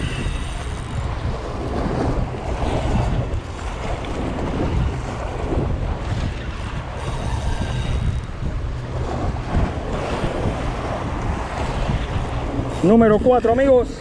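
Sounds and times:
waves washing: 0.0s - 14.0s
wind buffeting microphone: 0.0s - 14.0s.

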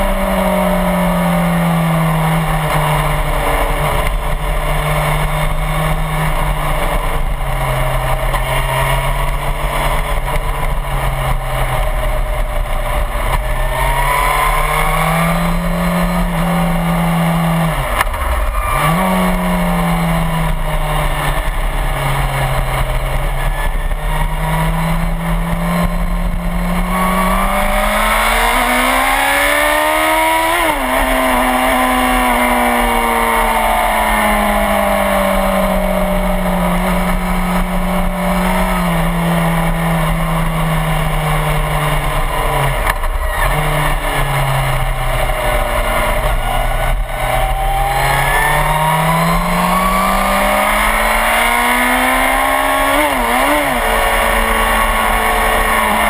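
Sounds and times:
motorcycle engine revving: 0.0s - 56.0s.

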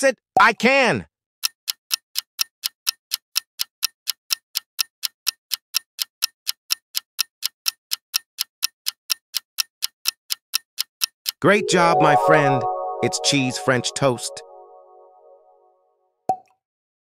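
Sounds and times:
clock ticking: 1.4s - 15.0s.

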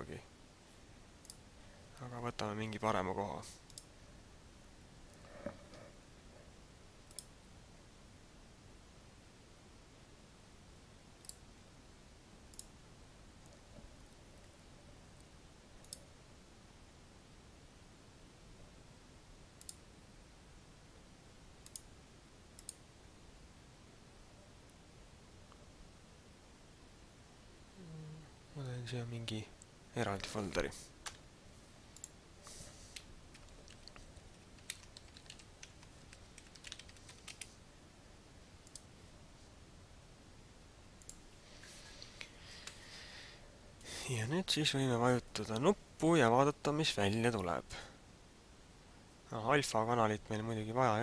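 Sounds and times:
faint room hiss: 0.0s - 51.0s
isolated clicks: 7.1s - 7.3s, 15.8s - 16.0s, 19.6s - 19.8s, 21.6s - 21.9s, 22.6s - 22.8s, 38.6s - 38.9s, 41.0s - 41.2s
keyboard typing: 33.0s - 37.6s.

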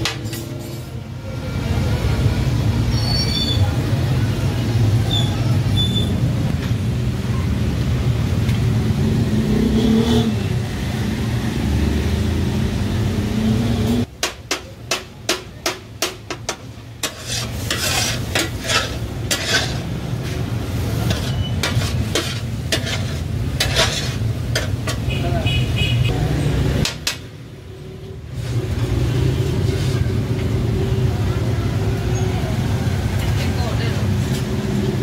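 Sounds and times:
metal scrapers clanking on griddle: 0.0s - 1.0s, 16.1s - 25.1s.

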